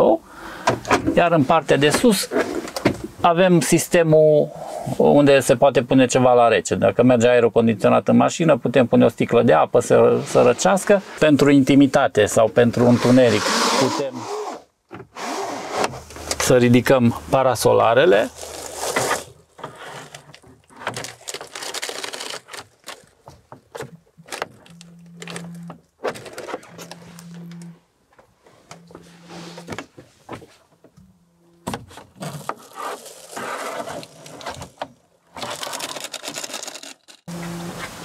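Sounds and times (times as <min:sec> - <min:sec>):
window blinds clicking and rattling: 0:18.3 - 0:23.1, 0:35.4 - 0:37.3.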